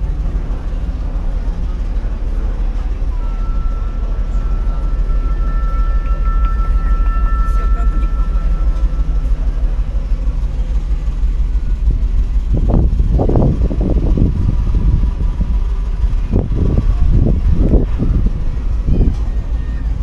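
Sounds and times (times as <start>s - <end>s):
people's voices: 0.0s - 20.0s
wind buffeting microphone: 0.0s - 20.0s.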